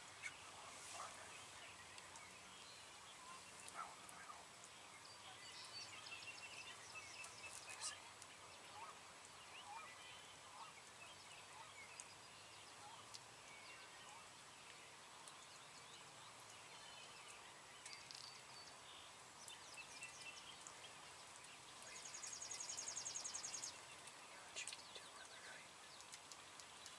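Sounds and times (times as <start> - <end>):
faint wild turkey clucks: 0.2 - 2.3, 3.1 - 4.6, 6.7 - 12.1, 12.7 - 13.2.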